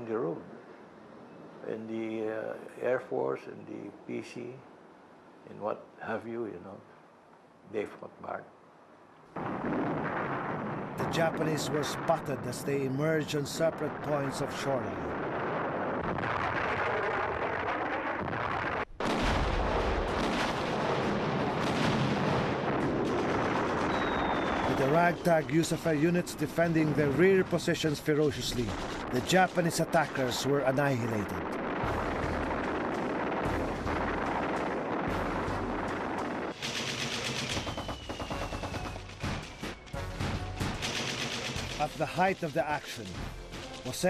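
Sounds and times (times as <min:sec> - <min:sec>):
artillery blasts: 0:09.4 - 0:44.0
continuous gunfire: 0:16.0 - 0:44.0
falling whistle: 0:23.9 - 0:24.8, 0:37.6 - 0:40.2
rapid machine-gun fire: 0:31.4 - 0:42.5.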